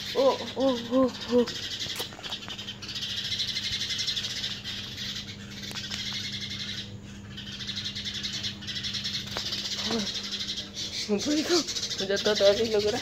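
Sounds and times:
small birds chirping: 0.0 - 13.0
steady low hum: 0.0 - 13.0.

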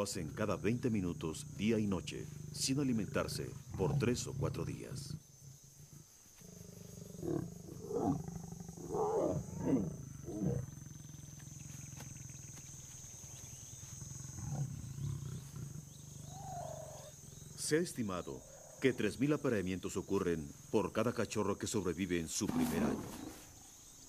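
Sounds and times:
lions calling: 0.0 - 12.6, 13.5 - 19.4.

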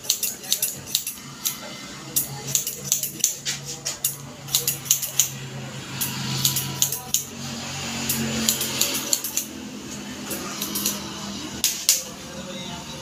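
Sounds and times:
scissors snipping hair: 0.0 - 5.4, 6.0 - 7.3, 8.1 - 9.5, 10.3 - 12.1.

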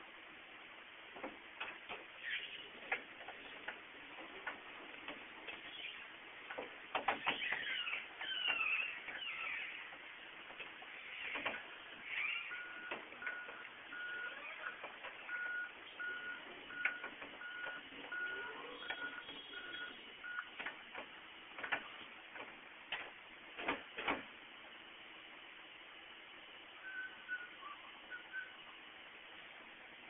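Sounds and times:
reverse warning alarm beeping: 12.5 - 20.6, 26.8 - 28.6.

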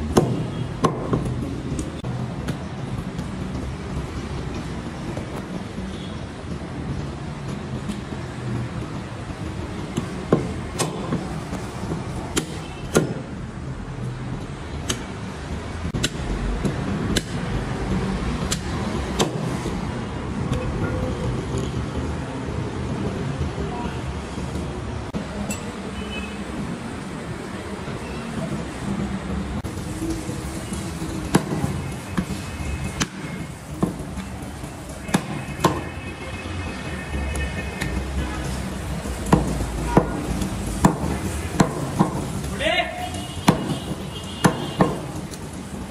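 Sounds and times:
cleaver chopping on wooden block: 43.5 - 43.8, 44.4 - 45.0.

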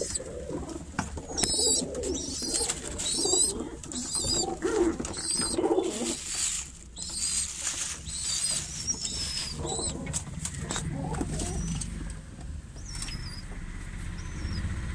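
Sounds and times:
pigeons cooing: 0.0 - 14.9
high wavering bird chirps: 1.3 - 11.9.

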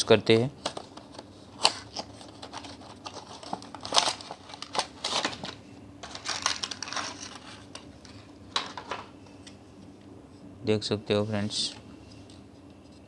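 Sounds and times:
plastic blister pack crinkling: 1.6 - 8.2.

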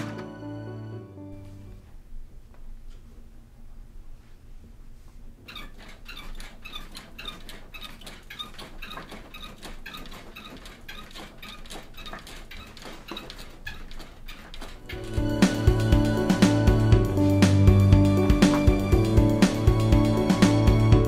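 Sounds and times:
rhythmic squeaking and tapping: 5.4 - 21.0.

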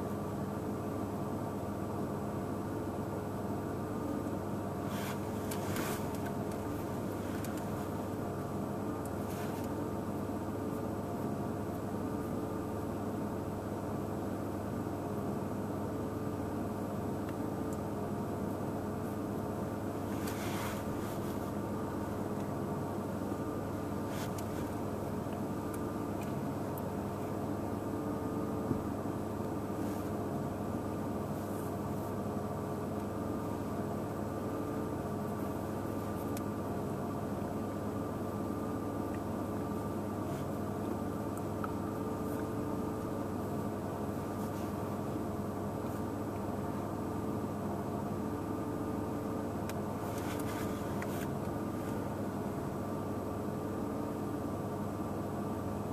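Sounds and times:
short rustle: 4.9 - 8.0.

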